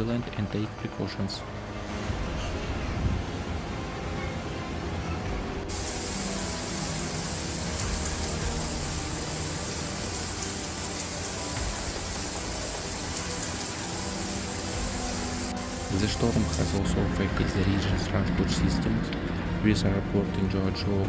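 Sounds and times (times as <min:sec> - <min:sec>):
heavy rain pouring: 0:01.8 - 0:17.0.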